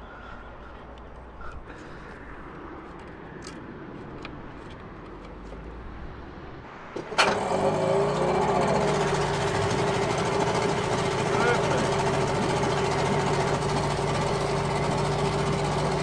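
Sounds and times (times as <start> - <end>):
outboard engine running: 7.1 - 16.0.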